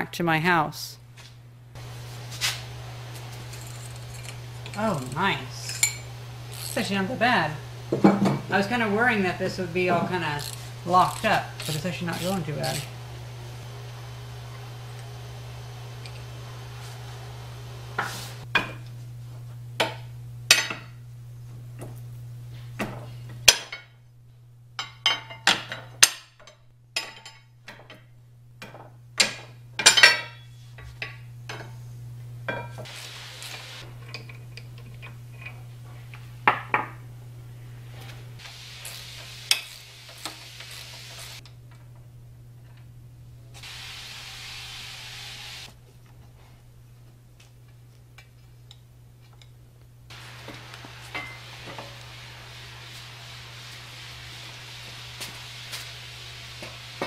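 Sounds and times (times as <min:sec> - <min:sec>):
metal tools clinking on iron: 0:03.5 - 0:06.9, 0:24.8 - 0:28.0, 0:29.8 - 0:31.6, 0:51.1 - 0:51.4
steady hiss: 0:32.8 - 0:33.9, 0:38.4 - 0:41.4, 0:43.6 - 0:45.8, 0:50.1 - 0:57.0.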